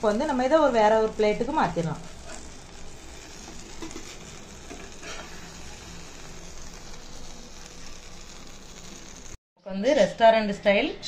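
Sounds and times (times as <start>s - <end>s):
butter sizzling on a pan: 0.0s - 9.4s
metal spatula scraping: 2.1s - 9.2s.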